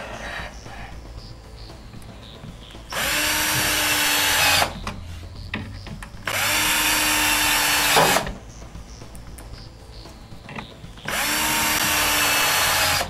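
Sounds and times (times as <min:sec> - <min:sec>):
power drill motor whine: 0:02.9 - 0:08.4, 0:10.6 - 0:13.0.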